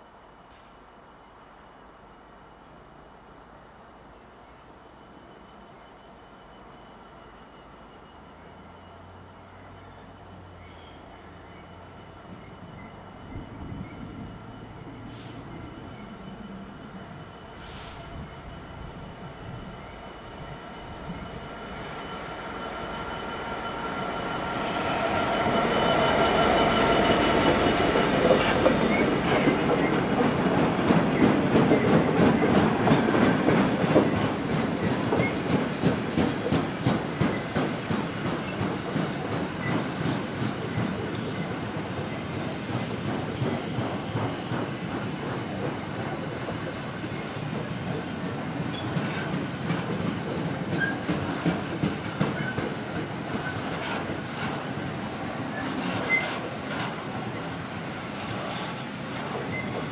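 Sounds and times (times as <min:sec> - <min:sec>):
diesel locomotive engine: 0:01.0 - 0:59.9
train wheels clicking over rail joints: 0:21.2 - 0:59.9.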